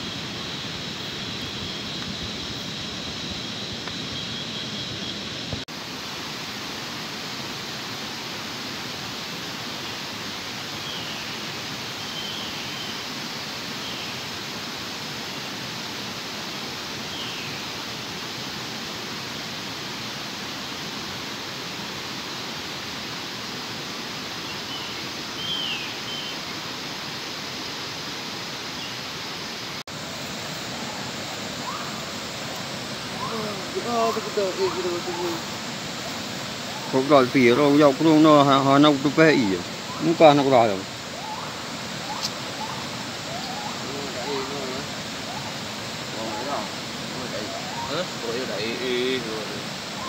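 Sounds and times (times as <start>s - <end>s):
forest river rushing: 0.0s - 50.0s
falling bird chirps: 41.2s - 45.5s.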